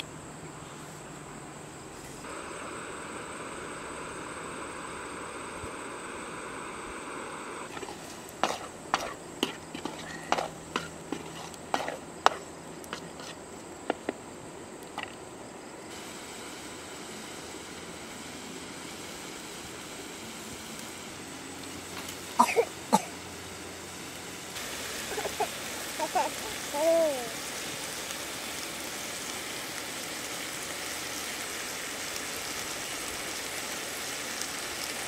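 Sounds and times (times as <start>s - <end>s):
frying hiss: 0.0s - 35.0s
spatula knocking on a wok: 8.4s - 12.4s.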